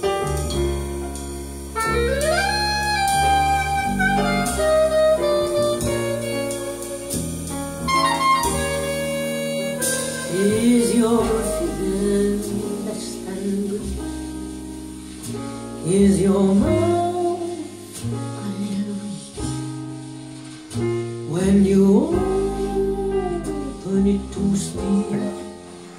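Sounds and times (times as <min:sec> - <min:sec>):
instrumental music over stereo: 0:00.0 - 0:25.9
person singing: 0:10.3 - 0:14.0, 0:21.4 - 0:25.6.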